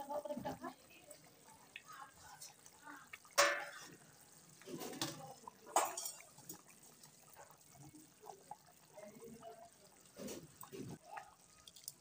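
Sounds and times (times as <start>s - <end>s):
curry bubbling at a boil: 0.0s - 12.0s
ladle clinking against metal pan: 5.7s - 6.2s.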